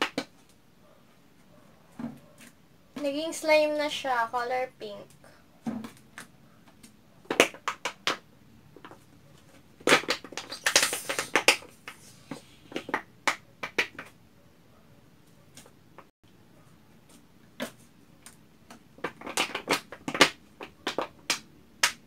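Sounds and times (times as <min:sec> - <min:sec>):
slime squelching and popping: 0:09.8 - 0:11.7
plastic bottle crackling: 0:09.8 - 0:13.0, 0:18.6 - 0:21.4.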